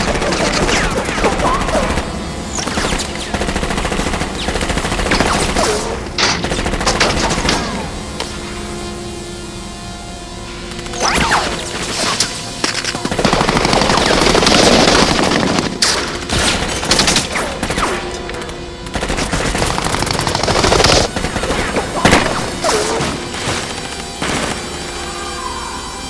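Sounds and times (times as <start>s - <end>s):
machine-gun fire bursts: 0.0s - 8.0s, 10.8s - 24.7s
film music score: 9.8s - 26.0s.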